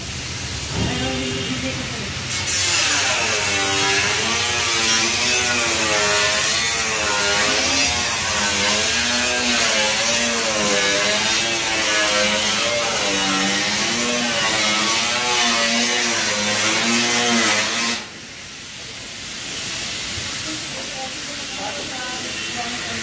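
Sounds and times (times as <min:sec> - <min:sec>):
spray gun air hissing: 0:16.3 - 0:23.0.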